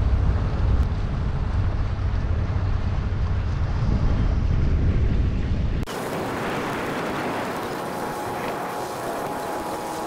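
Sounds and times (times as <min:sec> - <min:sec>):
ferry engine rumble: 0:00.0 - 0:10.0
wind buffeting microphone: 0:00.0 - 0:10.0
hiss of wind and water: 0:05.8 - 0:10.0.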